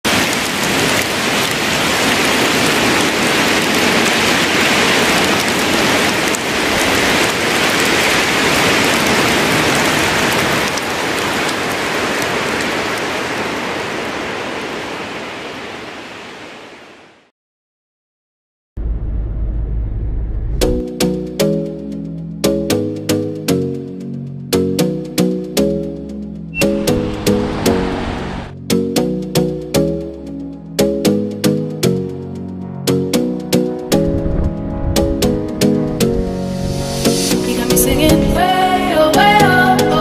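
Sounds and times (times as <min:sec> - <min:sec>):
loud rushing noise: 0:26.6 - 0:28.6.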